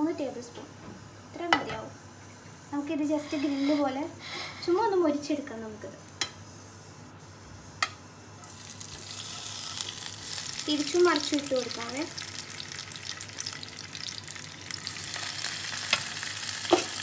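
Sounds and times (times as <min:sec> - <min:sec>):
chicken sizzling in oil: 0:08.4 - 0:17.0.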